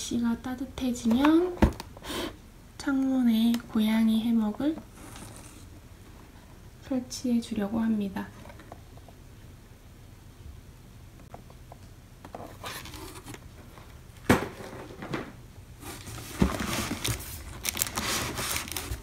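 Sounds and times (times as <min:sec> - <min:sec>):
packaging rustling and scraping: 0:04.9 - 0:05.7, 0:12.3 - 0:14.0, 0:15.8 - 0:19.0.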